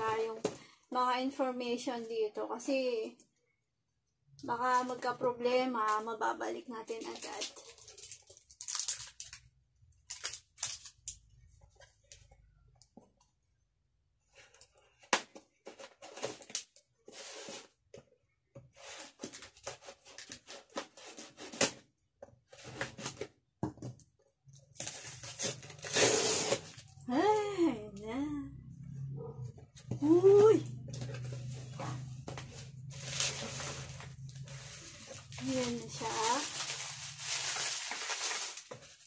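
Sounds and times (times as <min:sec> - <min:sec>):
packing tape and cardboard ripping: 0:07.1 - 0:09.4, 0:10.0 - 0:11.2, 0:18.9 - 0:21.9, 0:24.7 - 0:27.0, 0:30.3 - 0:39.0
scissors cutting cardboard: 0:24.9 - 0:26.8.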